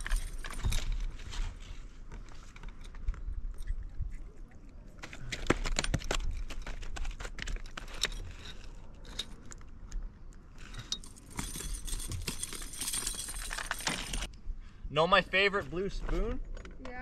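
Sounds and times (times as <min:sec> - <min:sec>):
fishing tackle clicking and jingling: 0:00.0 - 0:01.2, 0:05.6 - 0:14.3.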